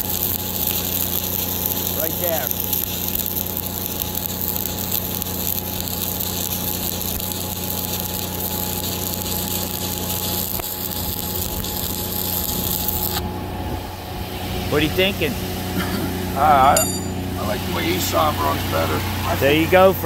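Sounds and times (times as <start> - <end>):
welding arc crackling: 0.0 - 13.3
welder engine humming: 0.0 - 20.0.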